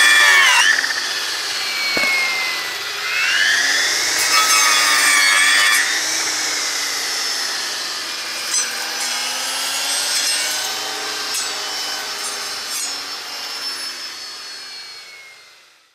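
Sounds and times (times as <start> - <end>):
trimmer blade cutting log: 0.0 - 7.8.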